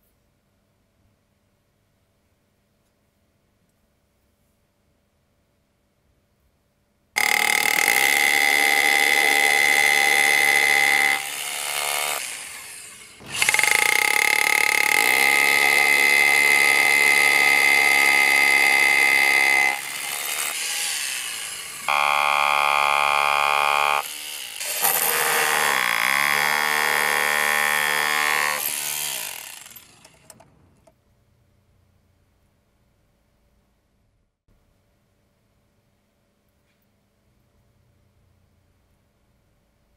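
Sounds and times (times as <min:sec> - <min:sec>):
hammer chiselling concrete: 0:07.2 - 0:30.4
rotary hammer drilling into concrete: 0:07.2 - 0:30.5.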